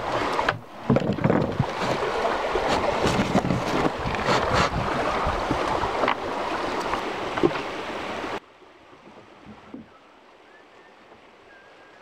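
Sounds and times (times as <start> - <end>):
wind on microphone: 0.0 - 7.6
rushing water: 0.0 - 12.0.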